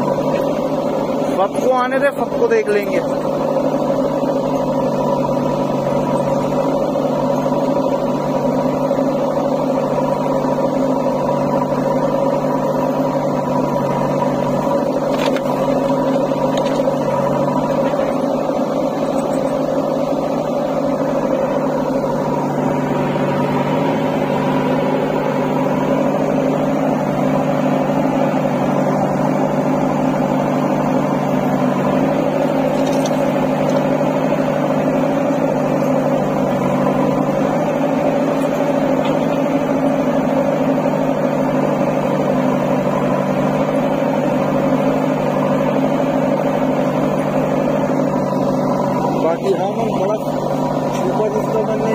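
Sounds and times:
backhoe loading dirt: 0.0 - 51.9
diesel engine running: 0.0 - 51.9.

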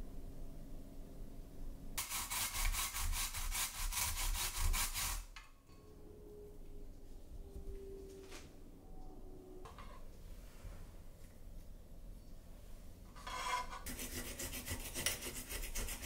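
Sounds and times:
food scraping on grater: 2.0 - 5.3, 13.2 - 16.0.

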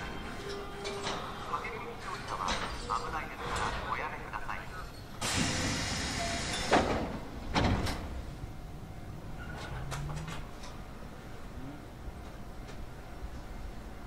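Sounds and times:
air hiss: 5.2 - 7.0
train doors thudding shut: 5.2 - 8.3.

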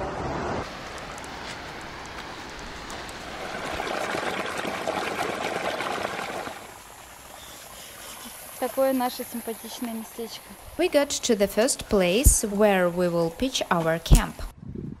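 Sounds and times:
water gushing into a rocky stream: 2.9 - 10.6.

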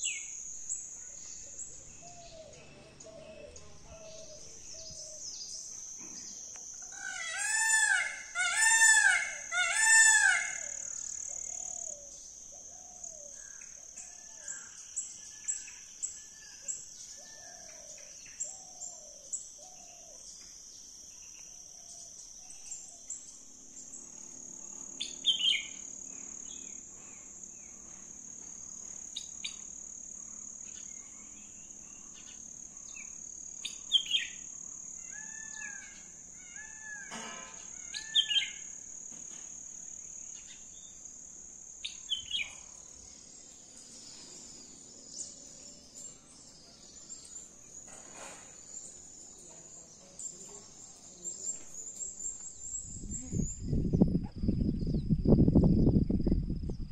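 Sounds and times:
high insect drone: 0.0 - 56.9
loud bird chirps: 6.8 - 12.1, 25.0 - 26.8, 30.6 - 38.8, 41.8 - 42.6
wild birds calling: 6.8 - 13.8, 29.2 - 49.1.

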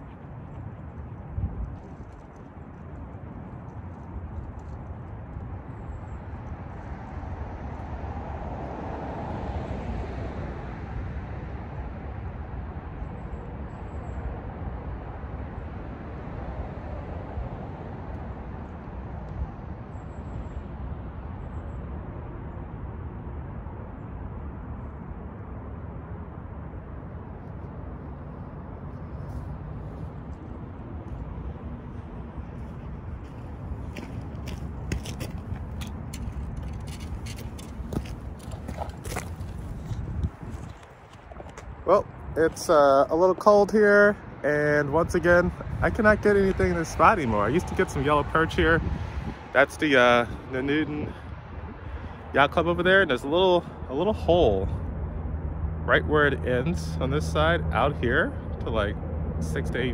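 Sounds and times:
outdoor rumble with hiss: 22.3 - 59.9.

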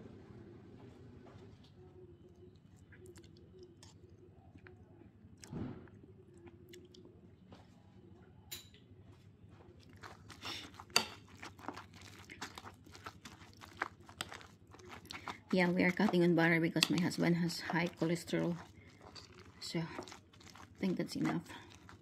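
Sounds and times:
utensil stirring mashed potatoes: 9.9 - 22.0
metal scraping ceramic bowl: 10.0 - 22.0.

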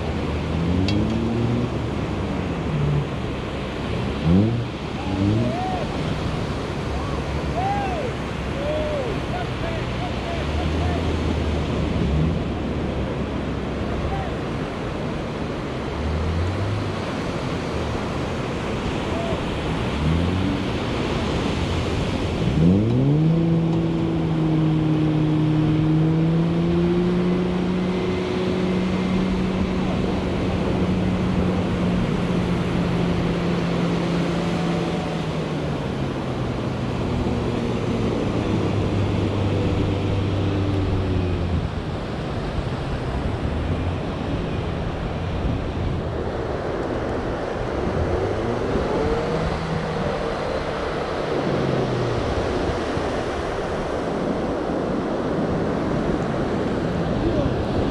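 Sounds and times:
pickup truck engine revving: 0.0 - 8.5, 19.5 - 44.7
breaking surf: 0.0 - 57.9.

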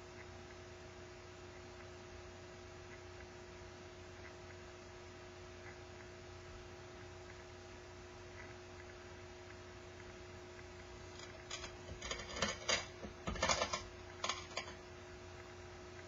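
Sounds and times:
steady low hum: 0.0 - 16.0
ceramic dishes clicking: 11.2 - 14.8.

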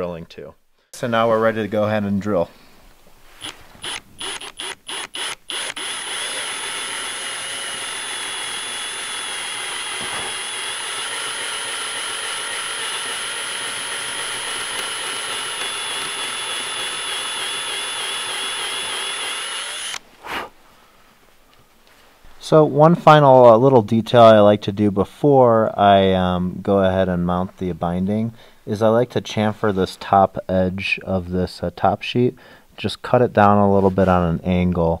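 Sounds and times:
power drill boring: 3.4 - 20.0.

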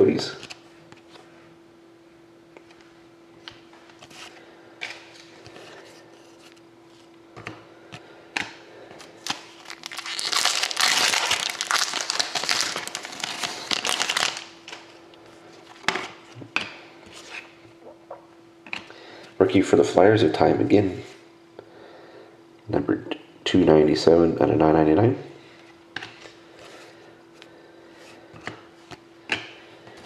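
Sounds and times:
faint steady hum: 0.0 - 30.0
foil wrapper tearing and crinkling: 9.2 - 14.6.

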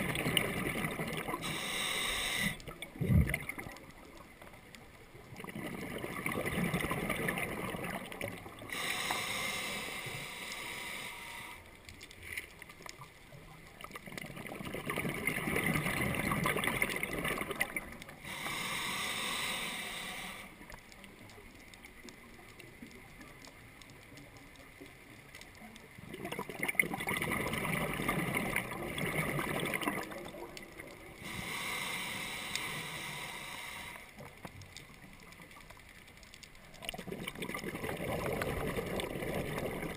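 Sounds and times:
exhaled bubbles rumbling underwater: 0.0 - 11.5, 12.6 - 39.9
regulator air hiss: 1.4 - 2.6, 8.7 - 11.8, 18.2 - 20.6, 31.2 - 34.2.

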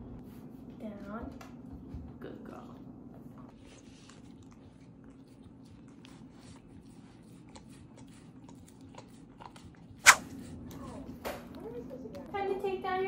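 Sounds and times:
puppy licking and smacking: 3.6 - 12.3.

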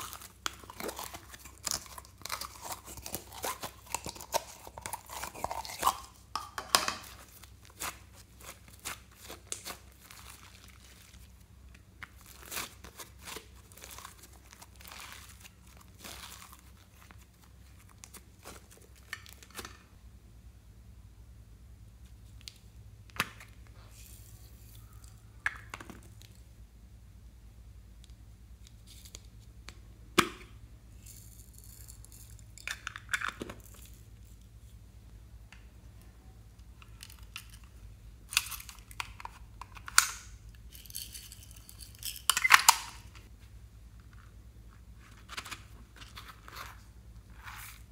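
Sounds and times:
sprinkles rattling in containers: 40.7 - 42.6.

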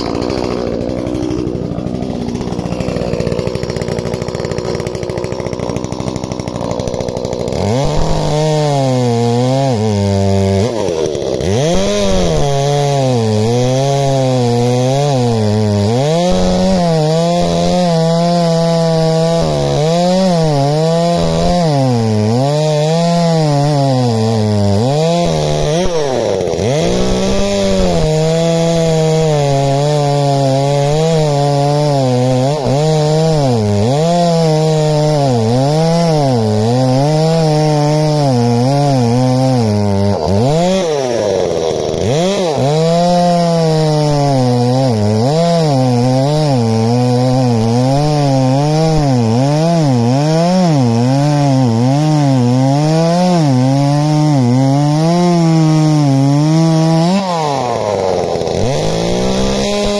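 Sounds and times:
chainsaw cutting through roots: 0.0 - 59.9.

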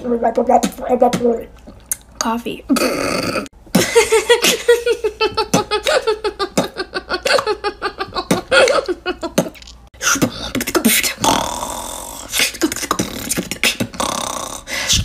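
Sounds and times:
woman laughing hard: 3.7 - 9.6.

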